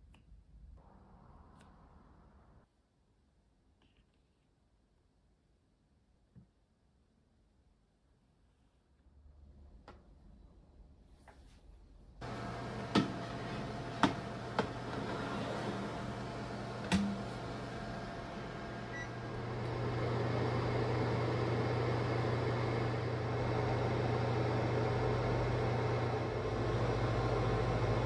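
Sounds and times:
oven fan hum: 12.2s - 28.0s.

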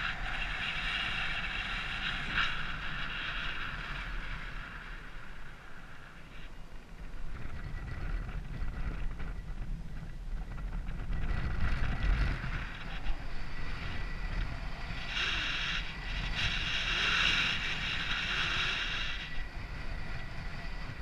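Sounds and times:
wind buffeting microphone: 0.0s - 21.0s
bright hiss: 12.9s - 20.2s.

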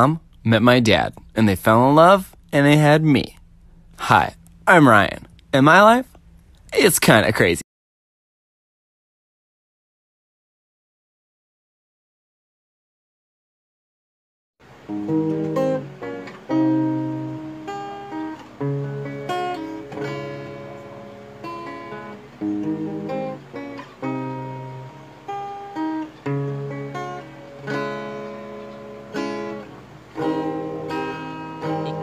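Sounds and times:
acoustic guitar chords: 0.0s - 7.2s, 14.6s - 32.0s.

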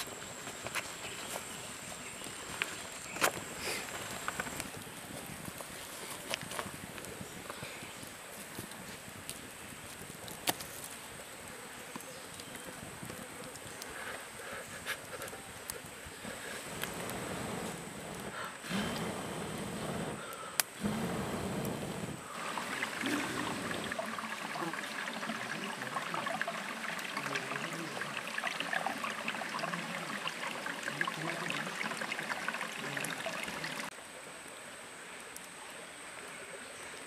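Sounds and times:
breath blown onto embers: 3.4s - 4.3s, 13.8s - 28.0s
stream trickling over stones: 21.7s - 35.5s.

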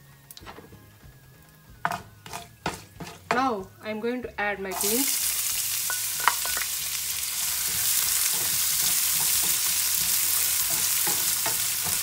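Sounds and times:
beans sizzling in hot oil: 4.7s - 12.0s.

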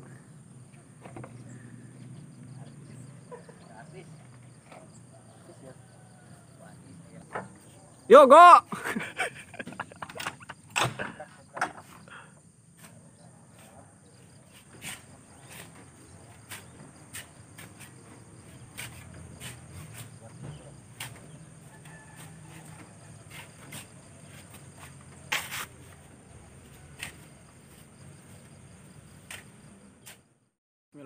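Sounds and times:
shovels scraping into sand: 14.5s - 20.2s, 23.2s - 26.0s
sand tossed into wooden truck bed: 23.4s - 26.0s.

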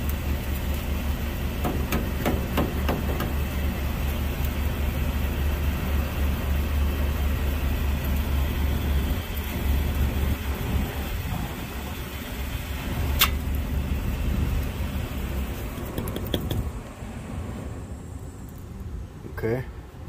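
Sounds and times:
truck engine idling: 0.0s - 19.0s
sharp clicks of wiring handled: 13.2s - 13.5s.

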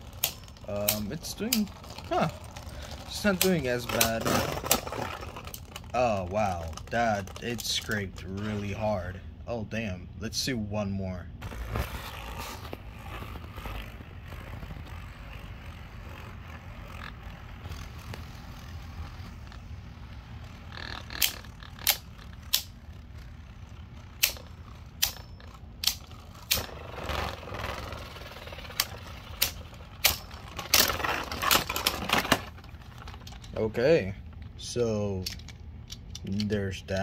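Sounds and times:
spinning tops clacking: 0.0s - 8.6s
spinning tops whirring: 0.0s - 9.1s, 11.4s - 34.5s
tops scraping: 0.0s - 9.3s, 11.4s - 37.0s.

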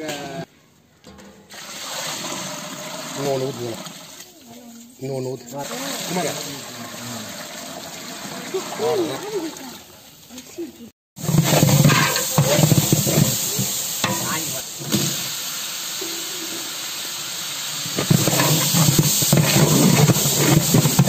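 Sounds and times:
food sizzling in a metal pot: 1.5s - 21.0s
ladle stirring: 11.2s - 14.5s, 18.0s - 21.0s.

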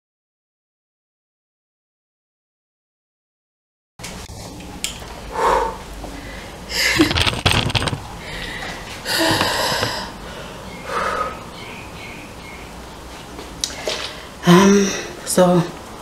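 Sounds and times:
camera handling rustle and knocks: 7.0s - 8.2s.

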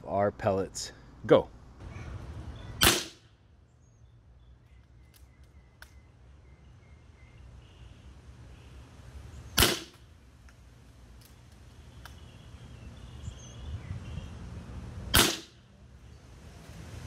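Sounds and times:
air rifle shot: 2.8s - 3.2s, 9.6s - 10.0s, 15.1s - 15.6s.

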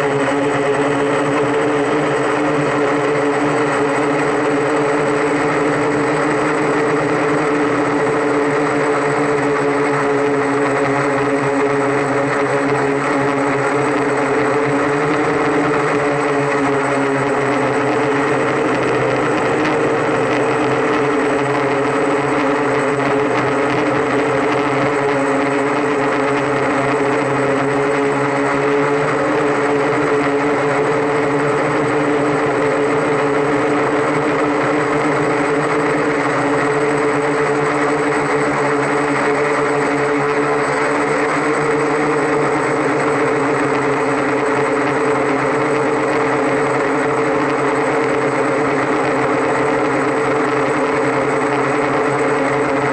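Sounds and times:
drone motors humming: 0.0s - 52.9s
propeller rushing buzz: 0.0s - 52.9s.

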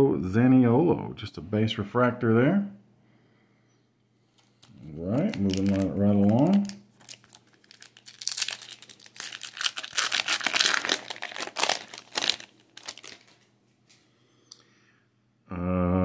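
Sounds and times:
wrapper tearing and crinkling: 4.6s - 13.5s.

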